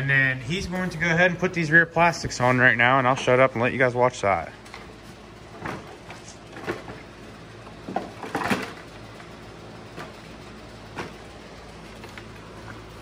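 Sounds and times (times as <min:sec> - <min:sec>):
hard plastic knocks and rattles: 0:07.8 - 0:08.8.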